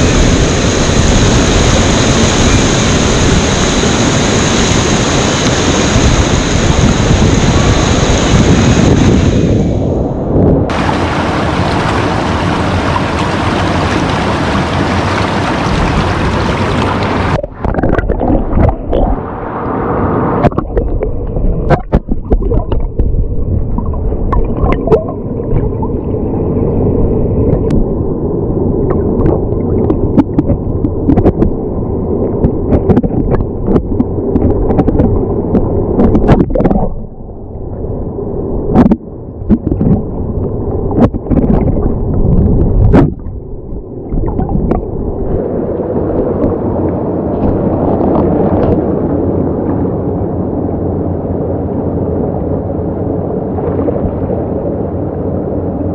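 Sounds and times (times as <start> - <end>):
muffled underwater gurgle: 0.0 - 19.6, 20.2 - 50.6, 53.4 - 54.7
stream water rushing and splashing: 10.7 - 19.6
underwater clicks and knocks: 17.4 - 19.1, 20.4 - 25.8, 28.9 - 31.6, 32.4 - 38.0, 38.7 - 44.9.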